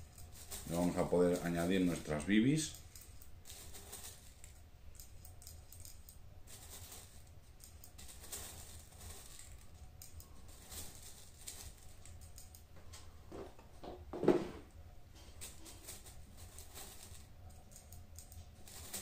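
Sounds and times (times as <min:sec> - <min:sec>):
metal pellets clicking and rattling: 0:00.0 - 0:12.7, 0:15.2 - 0:19.0.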